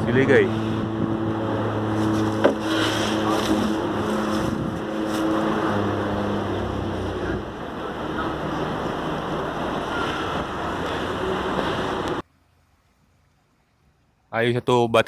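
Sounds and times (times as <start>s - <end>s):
wind buffeting microphone: 0.0s - 2.4s, 3.1s - 12.2s
truck engine humming: 0.0s - 14.1s.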